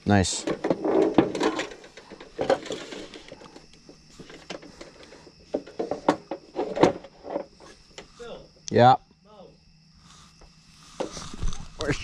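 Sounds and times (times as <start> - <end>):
metal parts knocking and clunking: 0.4 - 7.5.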